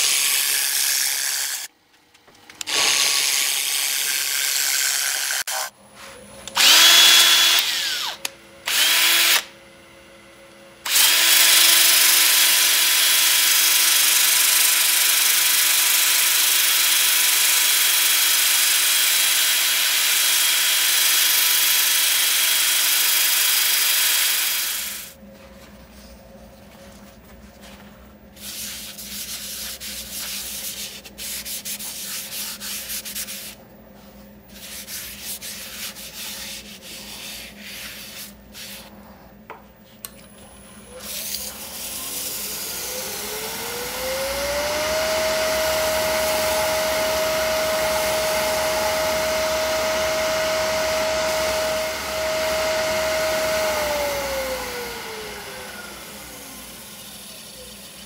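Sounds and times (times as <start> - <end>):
sandpaper rubbing on wood: 28.4 - 33.6, 34.5 - 38.9
lathe motor humming: 41.8 - 57.4.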